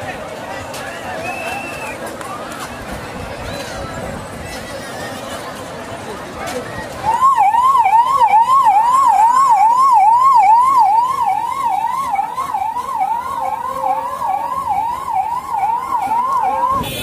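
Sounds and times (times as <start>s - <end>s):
electronic siren yelping: 7.1s - 16.9s.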